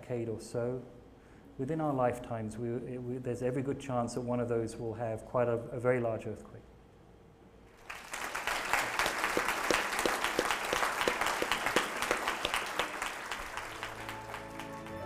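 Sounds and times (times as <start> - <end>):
audience applause: 7.8 - 15.0
quiet music: 13.4 - 15.0.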